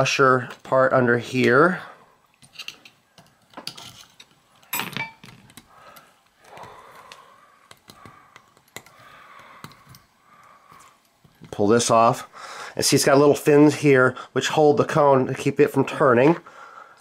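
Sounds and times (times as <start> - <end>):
small metal clicks and scrapes: 2.4 - 10.1.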